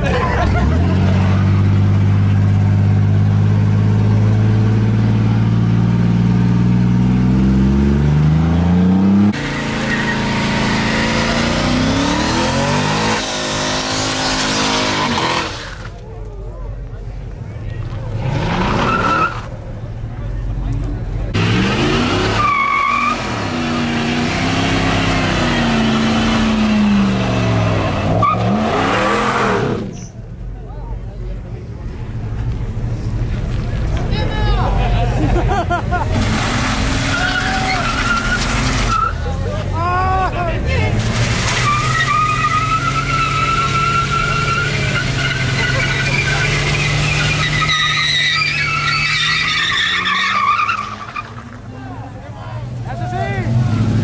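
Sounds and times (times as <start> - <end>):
truck engine revving high: 0.0 - 16.0, 18.1 - 19.6, 21.3 - 30.1, 35.5 - 51.7, 52.6 - 54.0
tyre squeal: 18.5 - 19.6, 28.1 - 30.2, 37.0 - 39.3, 41.4 - 51.5.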